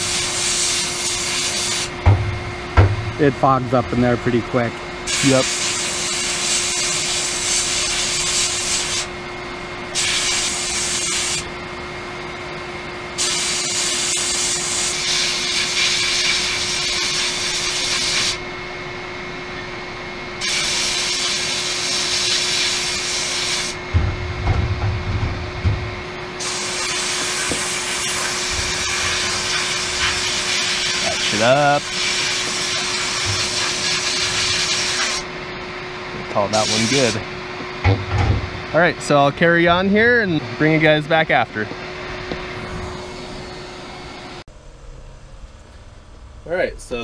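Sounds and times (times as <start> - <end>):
steady hum: 0.0 - 47.0
low rumble: 23.8 - 26.3
blast gun hissing: 26.4 - 35.2.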